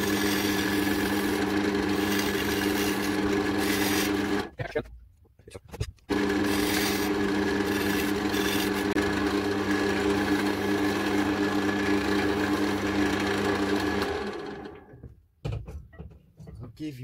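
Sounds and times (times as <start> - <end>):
lathe motor hum: 0.0 - 4.5, 6.1 - 15.0
tool scraping spinning wood: 0.0 - 4.6, 6.1 - 14.9.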